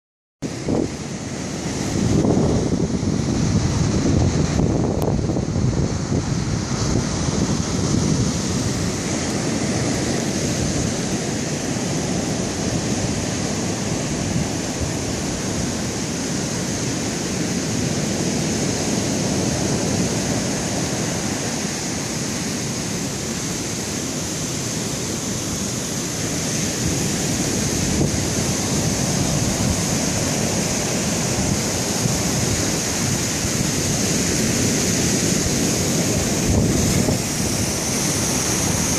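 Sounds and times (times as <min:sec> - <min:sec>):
ocean surf: 0:00.4 - 0:38.9
waterfall rushing: 0:00.4 - 0:38.9
wind on microphone: 0:00.4 - 0:38.9.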